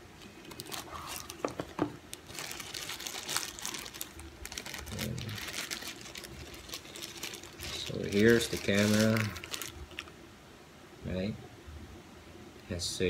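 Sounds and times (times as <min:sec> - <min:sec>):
packaging crinkling and rustling: 0:00.0 - 0:10.2.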